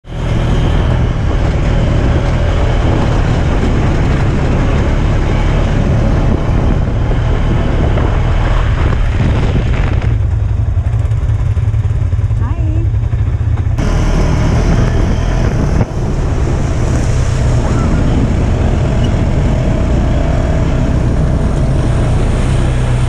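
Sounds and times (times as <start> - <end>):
off-road buggy engine running: 0.0 - 23.0.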